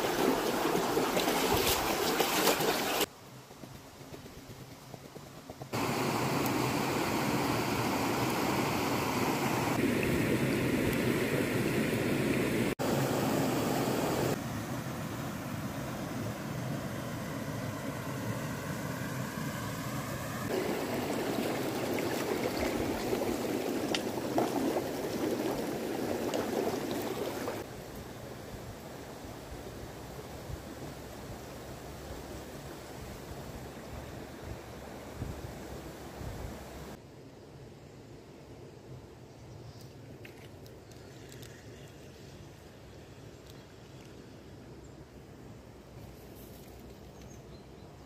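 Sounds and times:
water rushing over rocks: 0:00.0 - 0:03.1, 0:05.8 - 0:13.3, 0:20.5 - 0:27.7.

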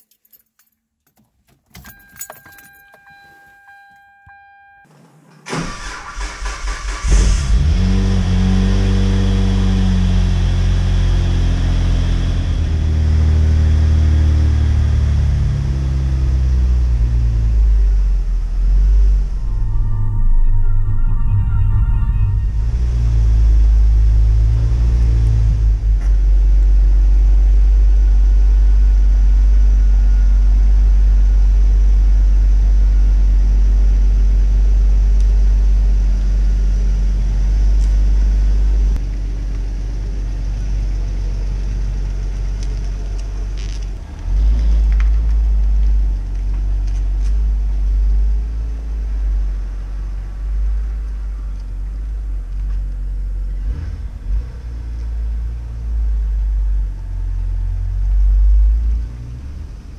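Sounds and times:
car engine idling: 0:04.9 - 0:08.6
car revving and driving away: 0:04.9 - 0:39.0, 0:53.4 - 0:59.9.

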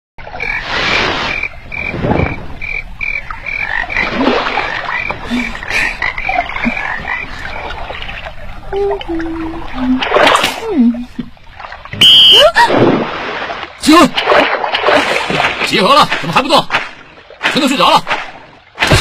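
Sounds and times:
frogs croaking: 0:00.2 - 0:10.3
water sloshing: 0:00.2 - 0:19.0.

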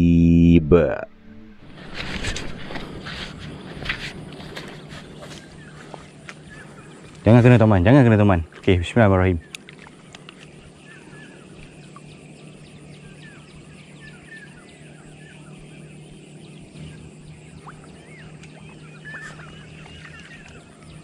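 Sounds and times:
steady low hum: 0:00.0 - 0:21.0
chirping animal calls: 0:09.4 - 0:21.0.

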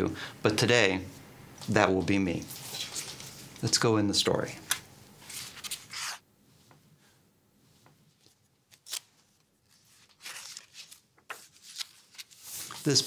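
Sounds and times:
book pages rustling: 0:02.4 - 0:03.7, 0:05.2 - 0:06.8, 0:07.8 - 0:13.0.

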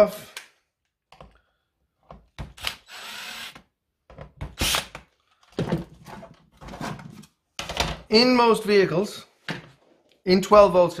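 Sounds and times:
cordless drill driving screw: 0:02.4 - 0:03.7, 0:04.5 - 0:05.0.

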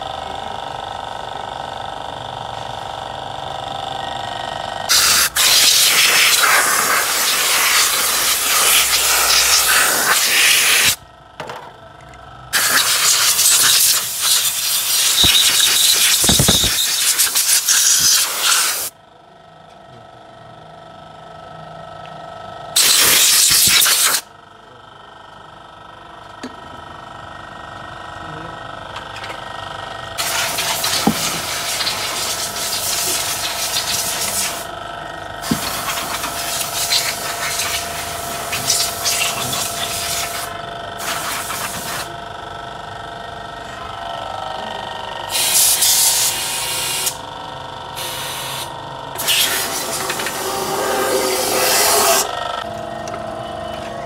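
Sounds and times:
steady background hum: 0:00.0 - 0:54.0
pressurised spray hissing: 0:12.6 - 0:18.9.

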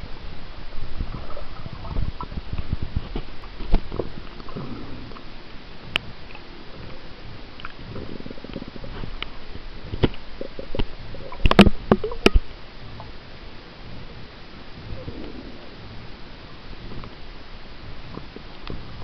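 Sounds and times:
underwater rumbling and sloshing: 0:00.0 - 0:19.0
sharp underwater clicks: 0:07.6 - 0:13.1.

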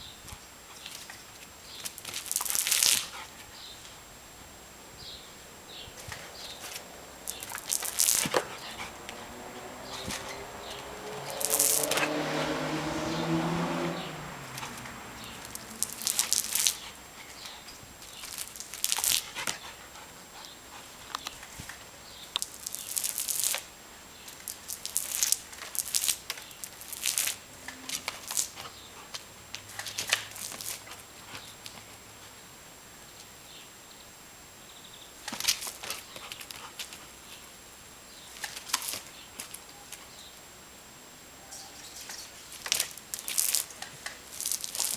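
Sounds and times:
dog noises: 0:06.6 - 0:12.6
water spray hissing: 0:13.8 - 0:17.5.

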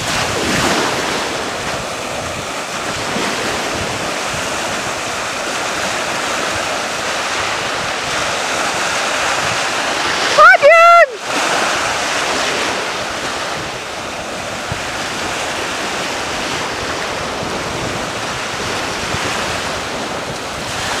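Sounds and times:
small waves washing on beach: 0:00.0 - 0:21.0
wind buffeting microphone: 0:00.0 - 0:21.0.

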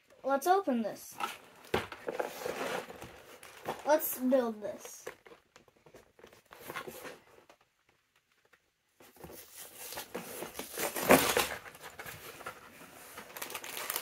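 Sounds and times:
cardboard box torn open: 0:10.0 - 0:11.9, 0:13.3 - 0:14.0
bagged bricks rustling: 0:10.1 - 0:14.0.

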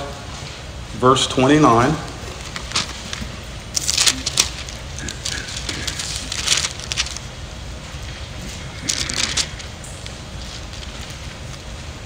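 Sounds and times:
book pages turning: 0:02.2 - 0:07.3, 0:08.4 - 0:11.9.

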